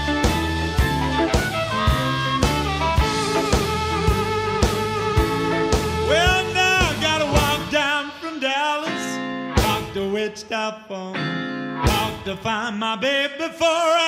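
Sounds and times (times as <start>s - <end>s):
steady drum beat: 0.0s - 8.4s, 9.6s - 10.1s, 11.9s - 12.3s
harmonica wailing: 0.0s - 8.8s
electric guitar: 0.0s - 14.0s.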